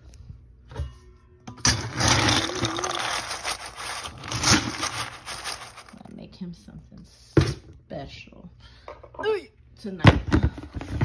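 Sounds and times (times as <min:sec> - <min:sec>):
dry kibble rattling and pouring: 0:01.8 - 0:06.1.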